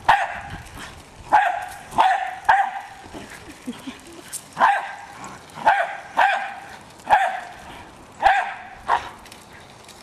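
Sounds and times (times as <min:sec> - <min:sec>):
dog barking: 0:00.1 - 0:00.5, 0:01.3 - 0:02.9, 0:04.6 - 0:05.0, 0:05.6 - 0:07.5, 0:08.2 - 0:09.1.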